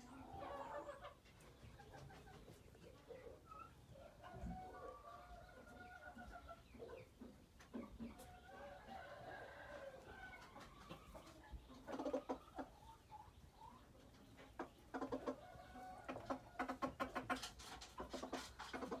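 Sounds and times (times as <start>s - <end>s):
junglefowl clucking: 11.8s - 12.7s, 14.6s - 19.0s.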